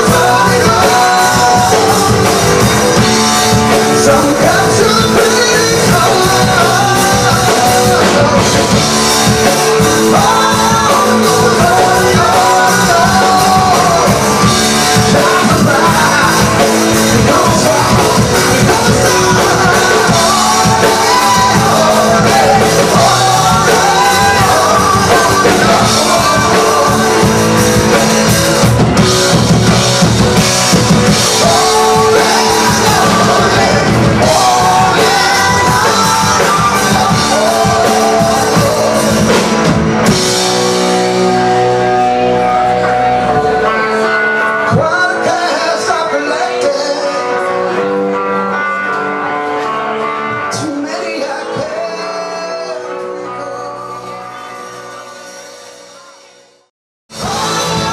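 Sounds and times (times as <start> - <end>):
drum kit beat: 0.0 - 43.6, 57.1 - 57.9
person singing: 0.0 - 56.4, 57.1 - 57.9
rock band playing: 0.0 - 57.9.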